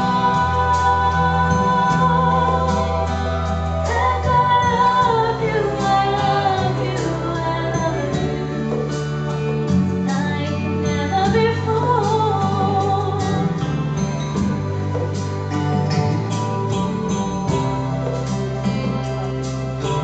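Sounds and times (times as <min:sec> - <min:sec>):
young woman singing: 0:00.0 - 0:14.6
backing track of sustained chords: 0:00.0 - 0:20.0.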